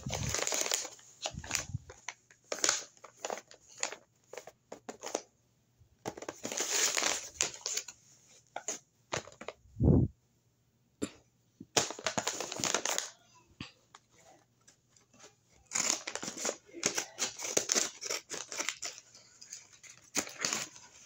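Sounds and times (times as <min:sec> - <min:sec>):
paper bag rustling: 0:00.0 - 0:05.2, 0:06.1 - 0:07.9.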